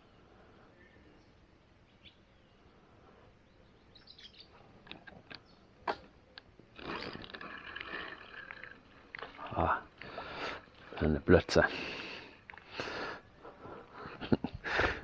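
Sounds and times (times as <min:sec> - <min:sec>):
faint bird chirps: 0:00.0 - 0:04.7.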